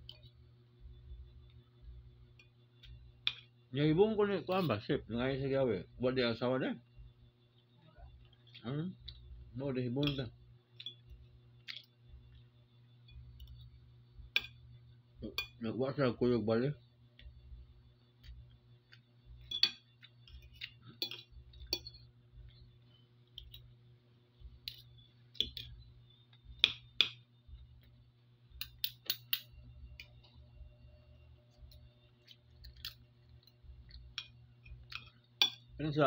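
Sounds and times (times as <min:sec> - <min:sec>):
steady low hum: 0:00.0 - 0:36.0
cutlery scraping on a plate: 0:19.4 - 0:22.1.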